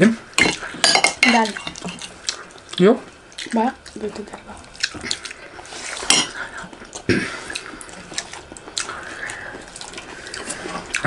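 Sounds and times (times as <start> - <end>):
people eating rice by hand: 0.0 - 11.0
spoons clinking on steel plates: 0.4 - 2.1.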